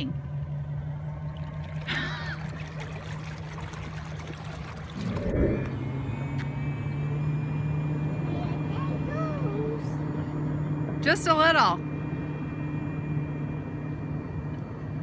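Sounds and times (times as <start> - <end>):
low rumble: 0.0 - 15.0
steady low hum: 0.0 - 15.0
water trickling and lapping: 0.3 - 5.8.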